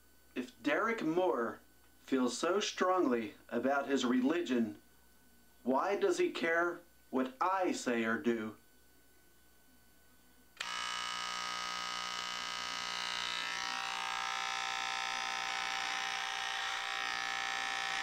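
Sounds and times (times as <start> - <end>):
electric hair clippers buzzing: 10.6 - 18.0.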